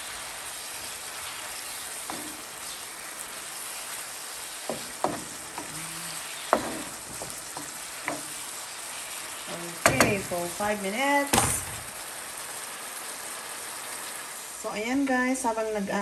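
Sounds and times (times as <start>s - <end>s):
food sizzling in a frying pan: 0.0s - 16.0s
spatula knocking against pan: 4.7s - 5.8s, 6.5s - 8.4s, 9.8s - 10.2s.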